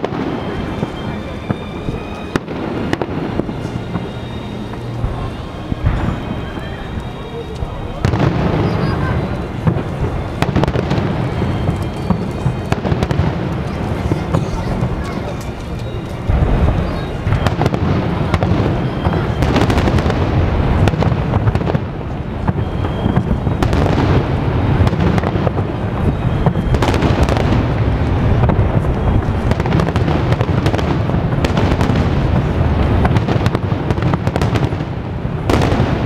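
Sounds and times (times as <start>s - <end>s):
firework shell bursts cracking: 0.0s - 21.8s
low rumble of fireworks: 0.0s - 36.0s.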